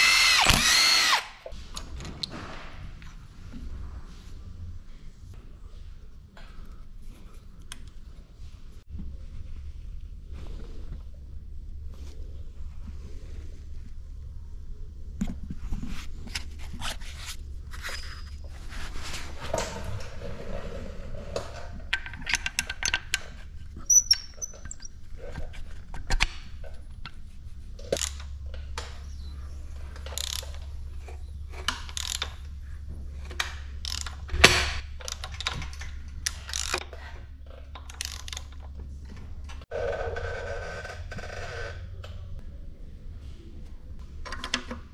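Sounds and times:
low steady hum: 0:00.0 - 0:39.6
ratchet wrench clicking: 0:33.8 - 0:34.2, 0:36.2 - 0:36.8.

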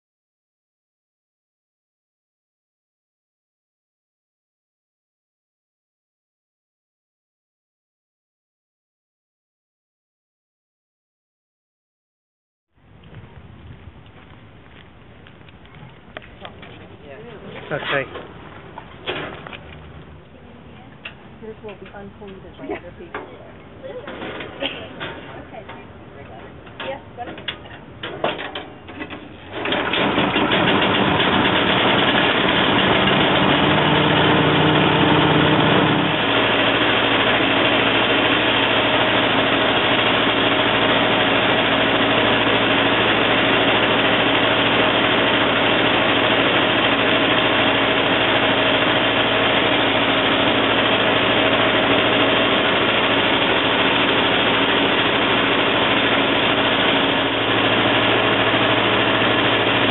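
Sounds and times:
small gasoline engine running: 0:28.3 - 0:59.9.

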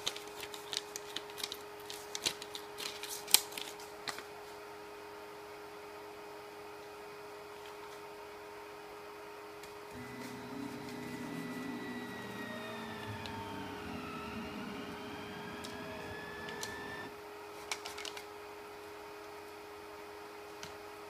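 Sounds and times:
stepper motors whining: 0:09.9 - 0:17.1.

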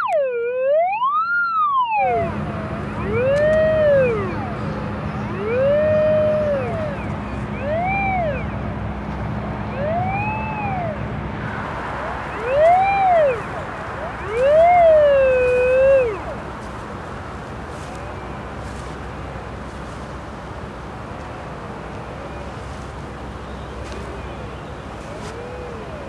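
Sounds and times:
signal tone gliding in pitch: 0:01.6 - 0:08.6, 0:09.7 - 0:16.4.

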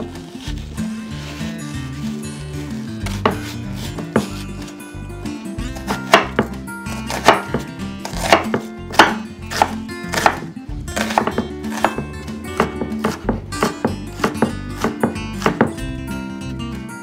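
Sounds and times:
background music: 0:00.0 - 0:17.0
knife chopping on wooden board: 0:03.1 - 0:04.4, 0:05.8 - 0:15.8.

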